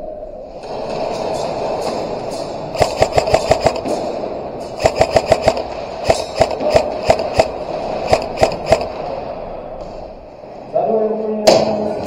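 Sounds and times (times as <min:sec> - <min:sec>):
steady background hum: 0:00.0 - 0:12.0
airsoft guns firing: 0:02.7 - 0:09.6.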